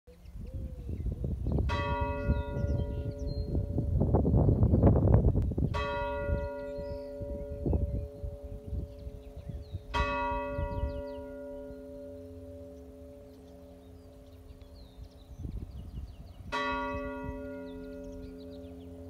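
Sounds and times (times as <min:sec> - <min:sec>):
church bell tolling: 0:01.7 - 0:04.0, 0:05.7 - 0:14.2, 0:16.5 - 0:19.0.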